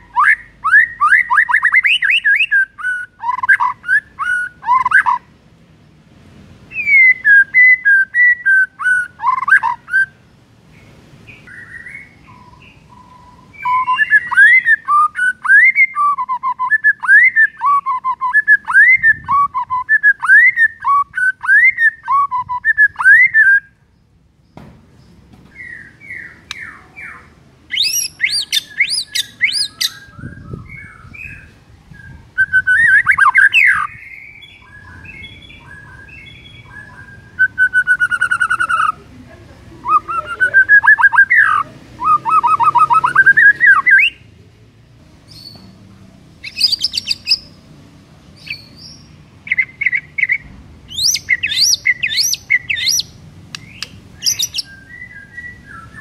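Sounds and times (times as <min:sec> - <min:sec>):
bird singing whistled phrases: 0:00.0 - 0:05.2, 0:06.7 - 0:10.2, 0:11.4 - 0:23.8, 0:25.5 - 0:39.0, 0:39.8 - 0:44.2, 0:46.4 - 0:47.5, 0:48.4 - 0:56.0
high rapid bird notes: 0:39.8 - 0:44.3, 0:48.4 - 0:56.0.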